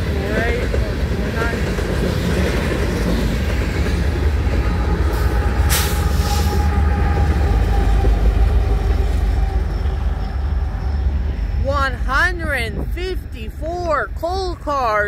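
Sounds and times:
freight train rumbling past: 0.0 - 15.0
brief hiss: 5.7 - 6.6.

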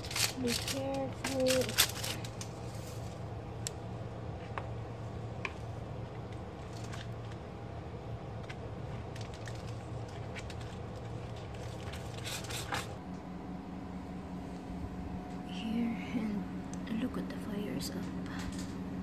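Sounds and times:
foil crinkling: 0.0 - 3.2, 8.4 - 13.0
steady low hum: 0.0 - 19.0.

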